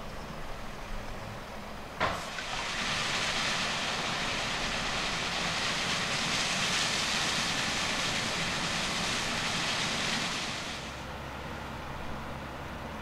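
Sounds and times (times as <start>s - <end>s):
harvest machinery rushing noise: 2.0s - 11.2s.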